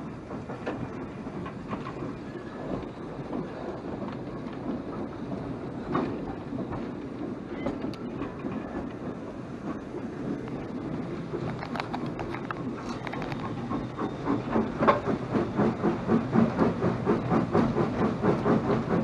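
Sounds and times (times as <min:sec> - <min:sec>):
steam locomotive rumble and rattle: 0:00.0 - 0:19.0
sharp clicks and knocks: 0:11.3 - 0:18.7.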